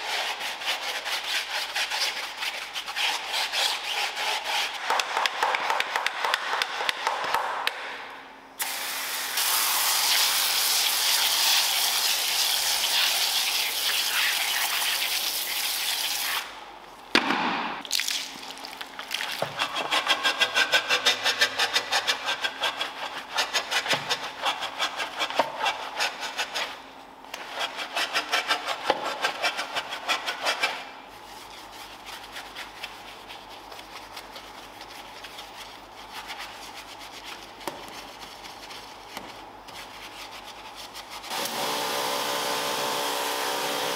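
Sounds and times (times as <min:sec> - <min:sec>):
brush scrubbing: 0:00.0 - 0:04.8, 0:19.2 - 0:26.8, 0:27.4 - 0:41.3.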